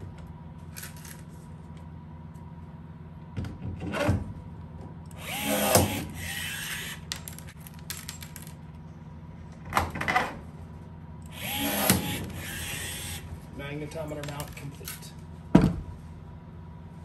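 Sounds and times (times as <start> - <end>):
steady low hum: 0.0 - 17.0
rivet tool motor running: 5.2 - 7.1, 11.3 - 13.3.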